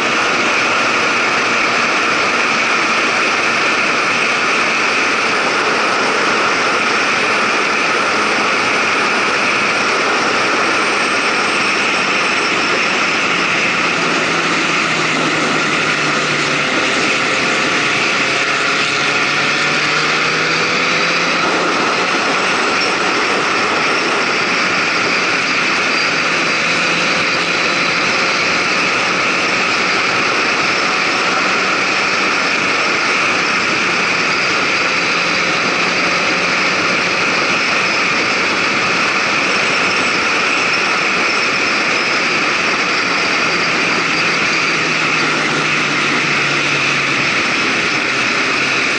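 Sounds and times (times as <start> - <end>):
motorcycle engine running: 0.0 - 48.9
wind rushing over microphone: 0.0 - 48.9.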